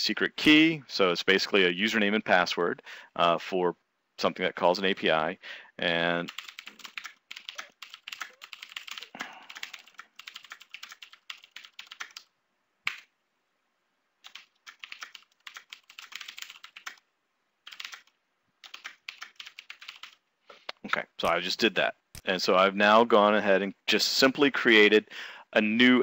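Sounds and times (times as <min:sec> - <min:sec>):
typing on computer keyboard: 0:06.3 - 0:12.3, 0:12.9 - 0:13.1, 0:14.2 - 0:17.0, 0:17.6 - 0:20.2.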